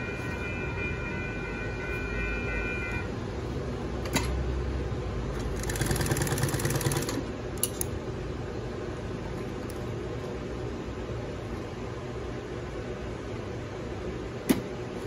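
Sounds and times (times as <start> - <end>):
sewing machine stitching: 5.6 - 7.2.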